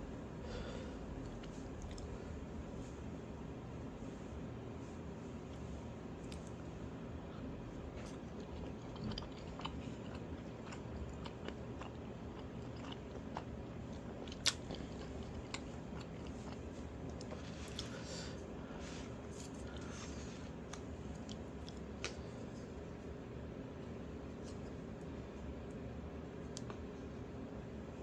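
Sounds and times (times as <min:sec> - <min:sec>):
steady low hum: 0:00.0 - 0:28.0
person chewing food: 0:00.5 - 0:02.6, 0:07.2 - 0:22.9.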